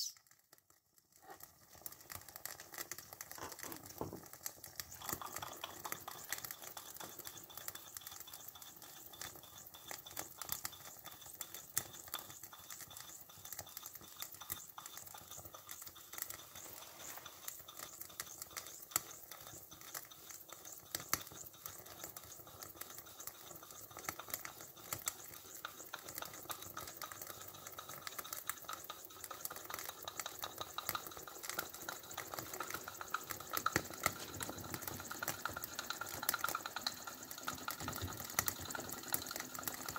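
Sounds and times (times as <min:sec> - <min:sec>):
boiler crackling and sizzling: 0:00.0 - 0:39.9.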